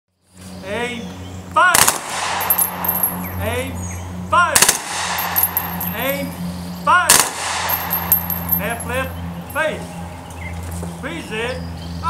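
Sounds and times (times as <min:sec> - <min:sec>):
rifle volley with echo: 0:01.7 - 0:03.6, 0:04.5 - 0:06.4, 0:07.0 - 0:09.1.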